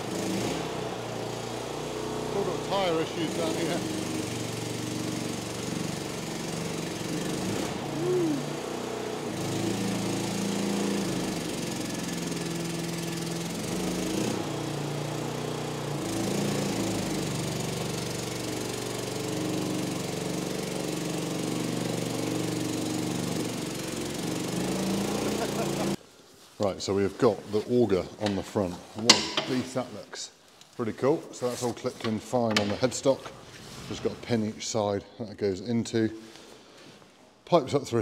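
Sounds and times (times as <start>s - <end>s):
small engine revving: 0.0s - 26.0s.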